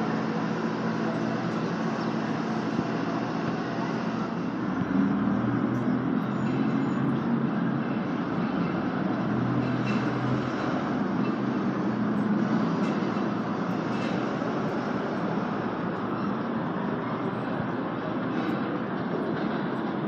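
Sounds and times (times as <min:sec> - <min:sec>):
rumble of elevated trains: 0:00.0 - 0:20.0
street traffic: 0:00.0 - 0:20.0.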